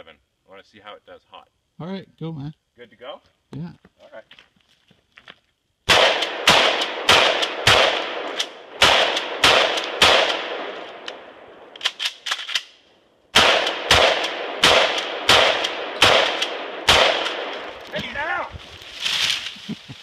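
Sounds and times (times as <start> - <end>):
shotgun shots: 5.9 - 12.7, 13.3 - 17.8.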